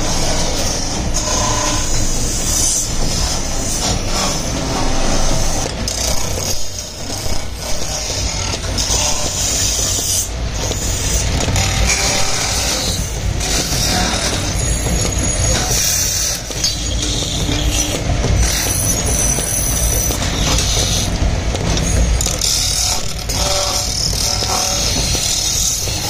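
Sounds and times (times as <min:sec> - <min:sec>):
cutting tool scraping spinning brass: 0:22.0 - 0:26.0.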